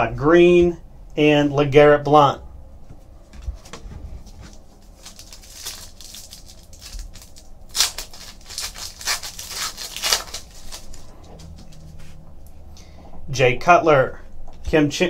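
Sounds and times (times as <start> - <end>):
foil wrapper crinkling: 4.2 - 11.8.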